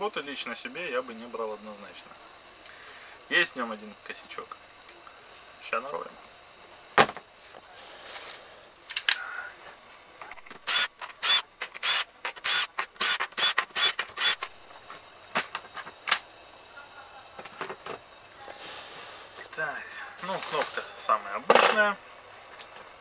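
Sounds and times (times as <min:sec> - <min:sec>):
drill-driver backing out screws: 0:10.6 - 0:14.5.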